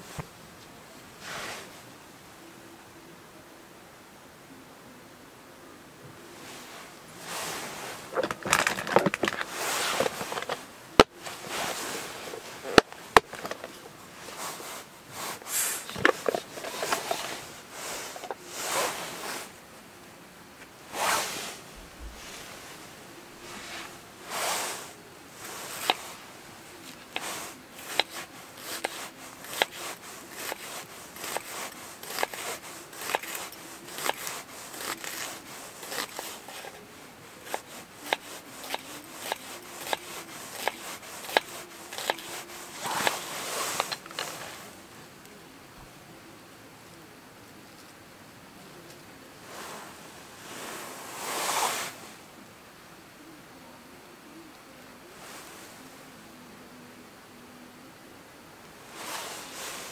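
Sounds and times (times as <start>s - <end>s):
camp gear rustling: 0.0s - 1.9s, 6.1s - 20.0s, 20.6s - 46.0s, 48.7s - 52.3s, 58.8s - 59.9s
knife cutting onion on board: 26.8s - 36.8s, 37.4s - 43.2s.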